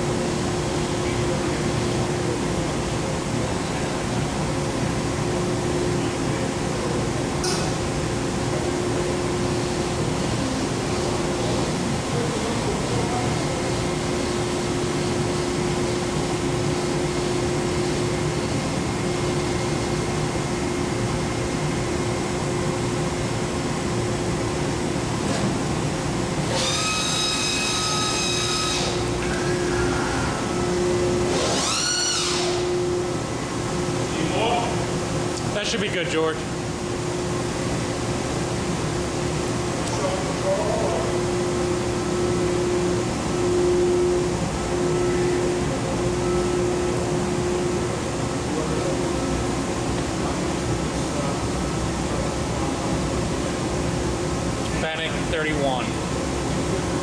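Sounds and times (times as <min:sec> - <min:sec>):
cnc router running: 0:00.0 - 0:57.0
high whining tone: 0:26.5 - 0:33.3.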